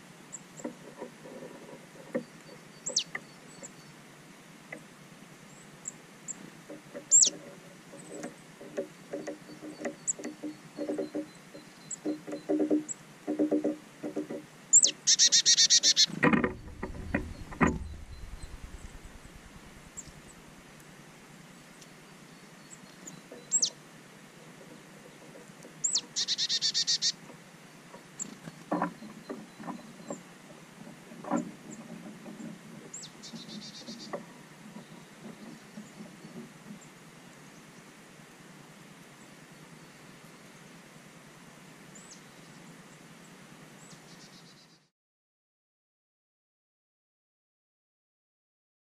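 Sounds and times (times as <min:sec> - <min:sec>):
songbird calling with trill: 0:02.2 - 0:04.0, 0:07.0 - 0:08.4, 0:09.1 - 0:13.0, 0:14.7 - 0:20.5, 0:21.8 - 0:23.8, 0:25.8 - 0:27.2, 0:32.9 - 0:34.2, 0:43.8 - 0:44.9
low thumps: 0:16.1 - 0:20.6.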